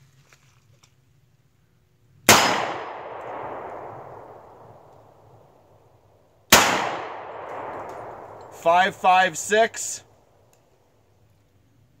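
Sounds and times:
revolver gunshot: 2.3 - 4.9, 6.5 - 8.6.

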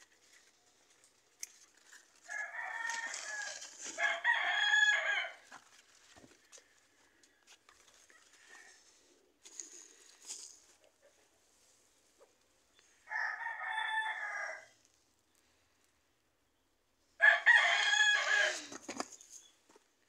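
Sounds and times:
rooster crowing: 2.2 - 5.5, 13.0 - 14.7, 17.2 - 18.8.

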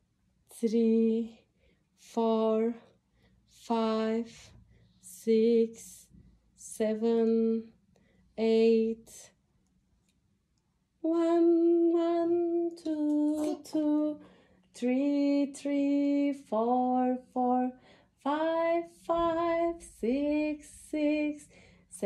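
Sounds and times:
woman singing slowly: 0.5 - 2.9, 3.5 - 7.8, 8.4 - 9.3, 11.0 - 22.0.

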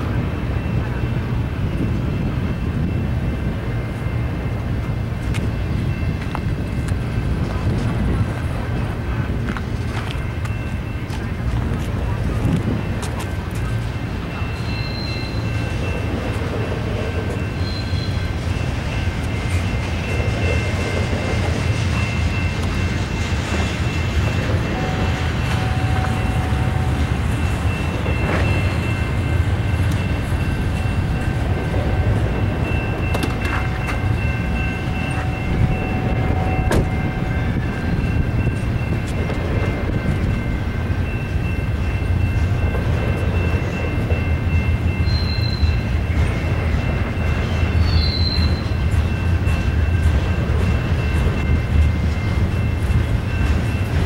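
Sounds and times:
train wheels rumbling on rail: 0.0 - 54.0
high wheel squeal: 12.8 - 42.5, 43.3 - 50.0.

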